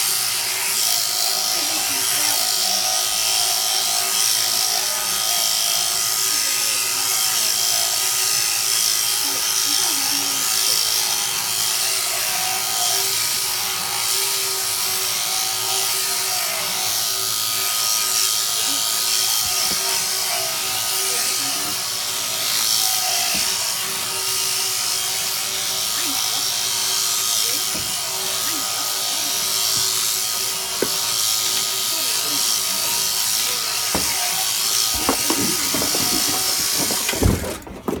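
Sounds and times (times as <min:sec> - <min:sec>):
electric shears whirring buzz: 0:00.0 - 0:37.7
thumps: 0:33.9 - 0:38.0.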